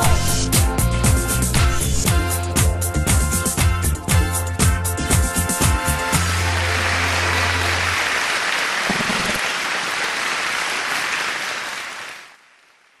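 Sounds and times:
studio audience applauding: 0:05.6 - 0:13.0.

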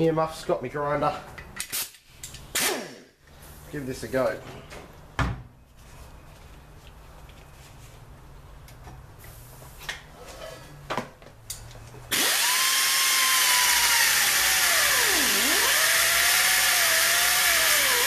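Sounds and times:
angle grinder cutting steel: 0:12.1 - 0:18.0.

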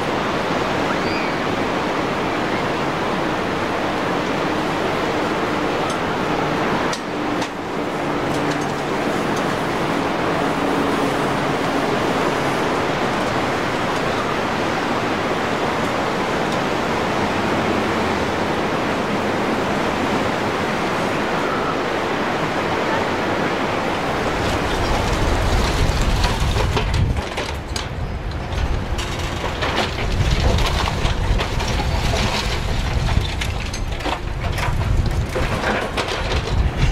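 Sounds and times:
surf breaking on beach: 0:00.0 - 0:27.3.

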